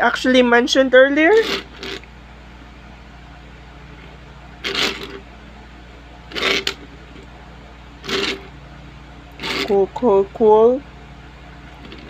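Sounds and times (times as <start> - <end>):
steady low hum: 0.0 - 12.0
toy cars scraping on tabletop: 1.3 - 2.0, 4.6 - 5.2, 6.3 - 6.9, 8.0 - 8.5, 9.4 - 9.8.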